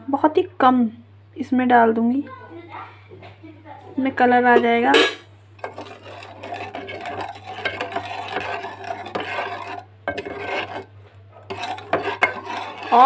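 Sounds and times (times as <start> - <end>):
spoon scraping metal pot: 4.5 - 13.0.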